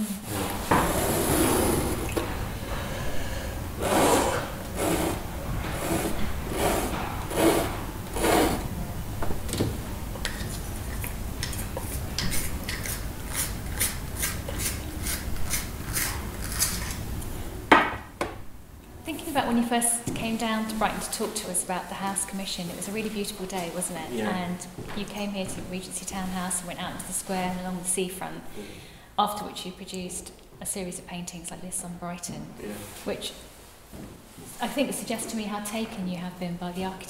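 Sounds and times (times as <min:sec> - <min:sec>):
pencil scratching on board: 0:03.8 - 0:05.2, 0:05.8 - 0:08.6
pencil sharpener scratching: 0:03.8 - 0:05.2, 0:05.8 - 0:08.6.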